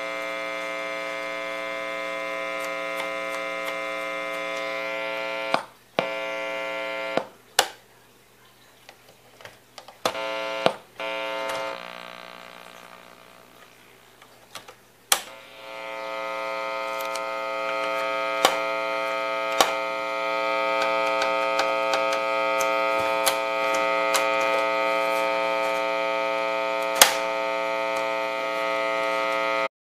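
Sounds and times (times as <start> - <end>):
buzzing mains hum: 0.0 - 7.5, 10.0 - 29.7
control clicks: 10.0 - 13.7, 14.6 - 25.9, 26.7 - 29.6
power switch click: 15.1 - 16.2, 16.9 - 20.0, 26.8 - 28.1.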